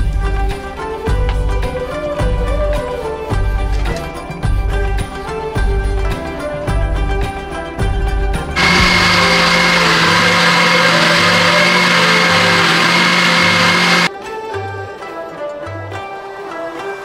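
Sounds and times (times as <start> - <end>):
blender motor running: 8.6 - 14.1.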